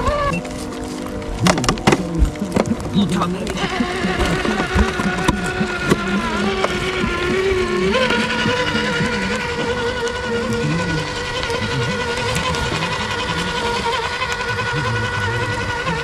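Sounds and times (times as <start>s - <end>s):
electric motor whining: 0.0s - 16.0s.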